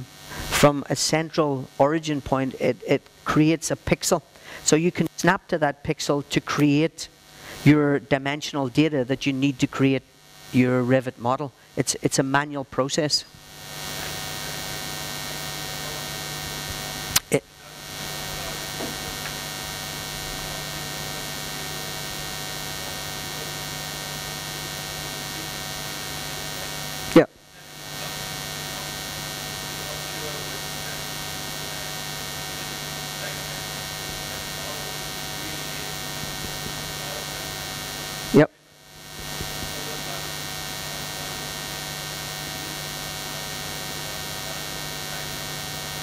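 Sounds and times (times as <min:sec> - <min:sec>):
electrical mains hum: 0:00.0 - 0:46.0
sharp pops: 0:17.1 - 0:17.4.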